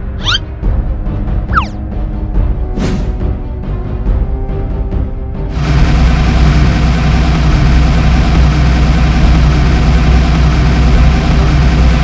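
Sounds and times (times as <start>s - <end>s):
heavy vehicle engine idling: 5.5s - 12.0s.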